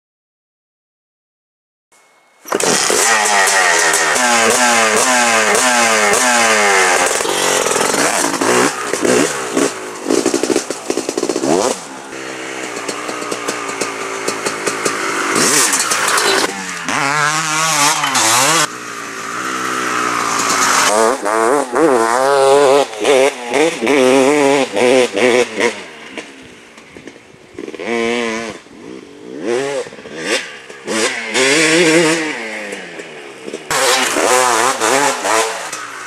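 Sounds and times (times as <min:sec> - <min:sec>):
dirt bike engine revving: 0:02.5 - 0:36.0.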